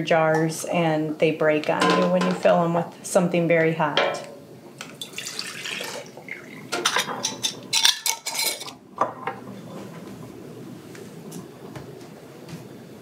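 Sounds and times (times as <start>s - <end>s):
broth pouring into jar: 5.0s - 6.6s.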